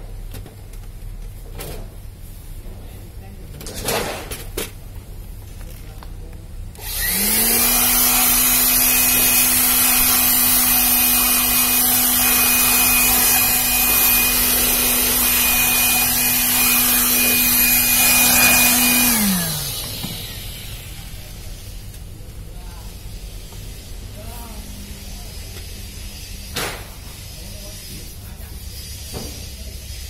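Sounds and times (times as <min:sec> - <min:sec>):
electric air blower whining: 0:06.8 - 0:21.9.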